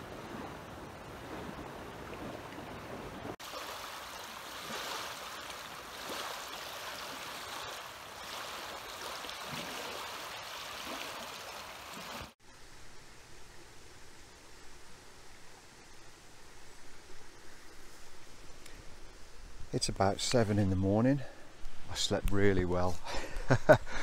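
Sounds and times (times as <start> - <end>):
waves lapping on pebbles: 0.0 - 12.4.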